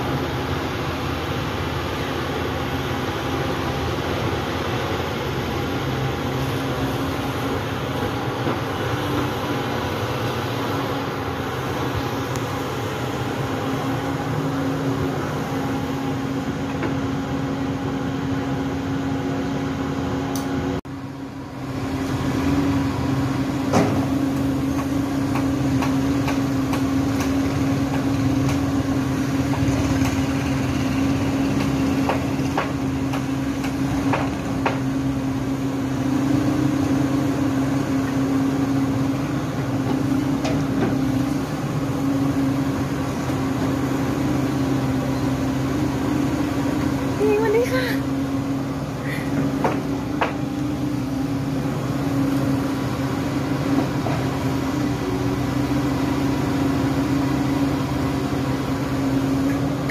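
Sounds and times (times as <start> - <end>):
excavator diesel engine droning: 0.0 - 59.9
excavator knocks in dirt: 23.6 - 28.7.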